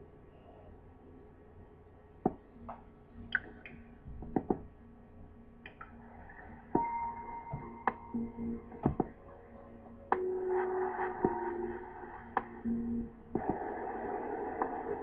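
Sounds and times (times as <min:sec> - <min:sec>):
steady ringing tone: 0:06.0 - 0:15.0.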